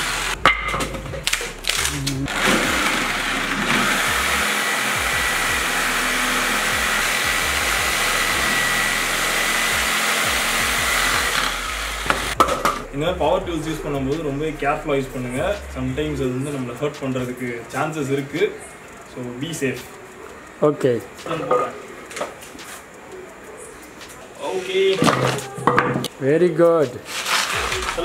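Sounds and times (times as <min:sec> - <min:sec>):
jigsaw cutting wood: 0:01.6 - 0:12.4.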